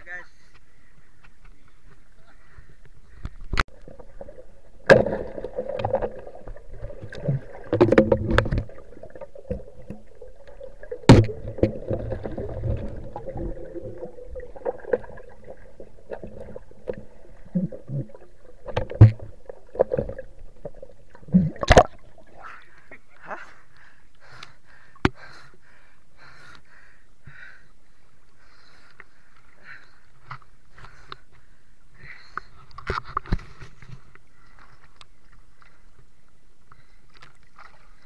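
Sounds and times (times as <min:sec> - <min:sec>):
underwater water movement: 0:01.0 - 0:25.8.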